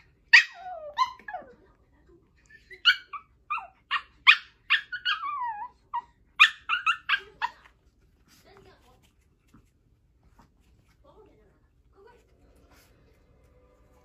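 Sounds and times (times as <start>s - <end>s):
puppy yipping and whining: 0.2s - 1.5s, 2.5s - 7.6s.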